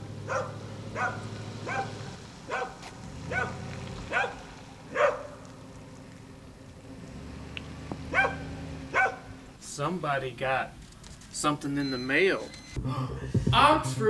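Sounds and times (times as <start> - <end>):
dog barking: 0.2 - 5.4, 8.1 - 9.3.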